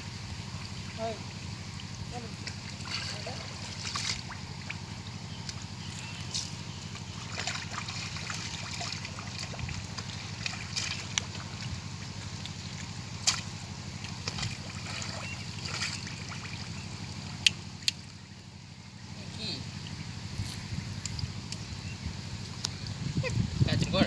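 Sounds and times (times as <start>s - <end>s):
hands splashing in muddy water: 2.4s - 4.8s, 6.4s - 16.8s.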